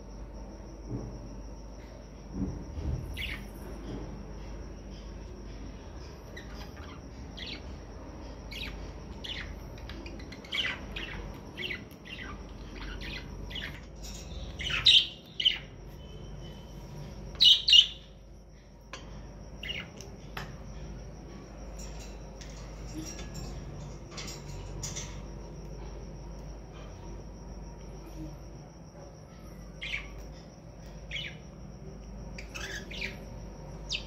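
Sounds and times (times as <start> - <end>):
parakeets chirping: 3.2 - 3.5, 5.9 - 18.2, 19.6 - 20.3, 21.8 - 25.5, 29.3 - 31.6, 32.3 - 34.0.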